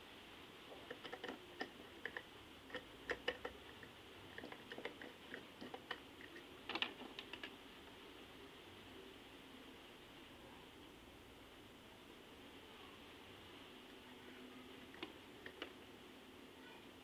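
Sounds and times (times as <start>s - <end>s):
hands clicking plastic parts: 0.8s - 7.6s, 14.9s - 15.8s.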